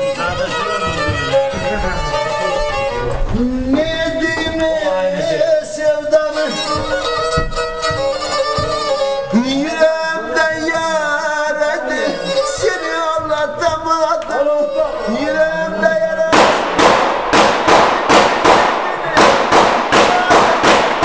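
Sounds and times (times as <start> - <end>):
bowed fiddle folk tune: 0.0 - 16.5
man singing: 3.2 - 7.5, 8.3 - 16.8
people clapping: 17.4 - 21.0.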